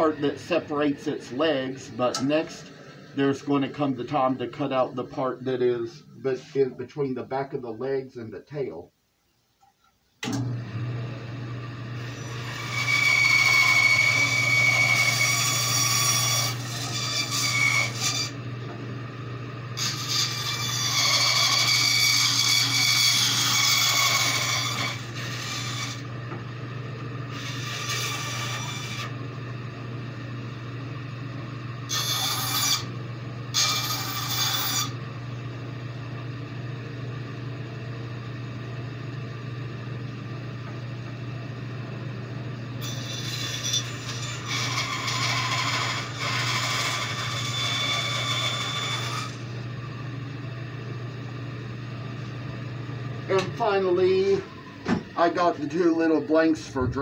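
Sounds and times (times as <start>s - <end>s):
bandsaw motor hum: 10.2s - 57.0s
saw blade cutting wood: 12.0s - 18.4s, 19.8s - 26.1s, 27.3s - 29.2s, 31.9s - 32.9s, 33.5s - 35.0s, 42.8s - 49.5s.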